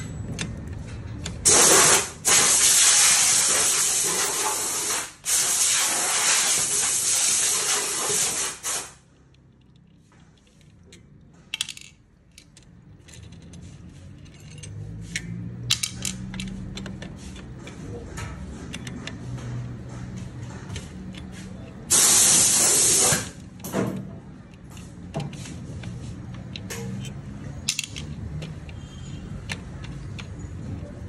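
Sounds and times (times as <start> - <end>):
loud hiss: 1.5 - 9.0, 21.9 - 23.4
metal clinking: 9.5 - 17.0
socket wrench clicking: 14.2 - 17.8, 24.5 - 30.4.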